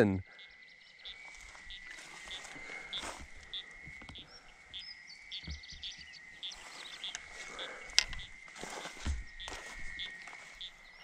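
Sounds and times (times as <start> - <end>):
frog trilling: 0.0 - 10.9
bird chirps: 0.0 - 11.0
soft rustles and thumps: 8.0 - 10.4.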